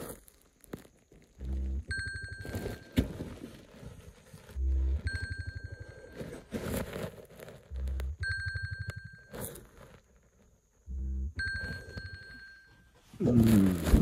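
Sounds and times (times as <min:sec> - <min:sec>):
phone alarm pulsing tone: 0:01.4 - 0:03.1, 0:04.6 - 0:06.4, 0:07.7 - 0:09.6, 0:10.9 - 0:12.9
short low buzzes: 0:10.9 - 0:11.4.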